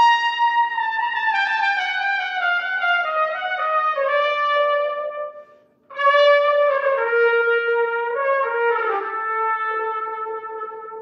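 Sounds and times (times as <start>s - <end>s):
trumpet playing: 0.0s - 11.0s.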